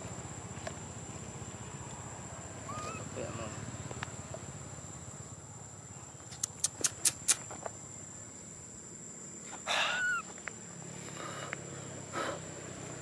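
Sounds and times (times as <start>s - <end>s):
baby monkey crying: 2.6s - 3.2s, 9.7s - 10.3s
sharp high clicks: 6.3s - 7.5s.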